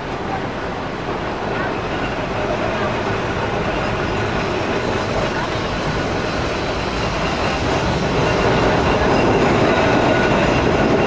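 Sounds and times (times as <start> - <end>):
tram wheels rumbling on rail: 0.0 - 11.0.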